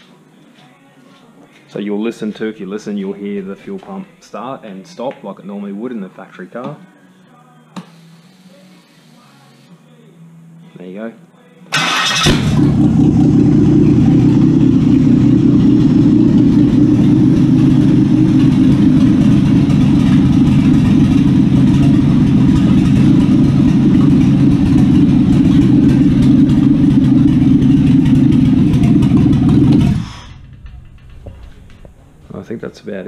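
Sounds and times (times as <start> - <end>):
car engine running steadily: 12.2 - 32.5.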